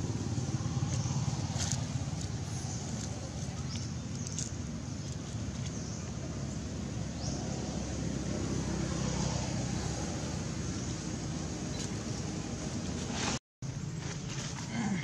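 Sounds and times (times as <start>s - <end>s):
low background rumble: 0.0s - 8.6s.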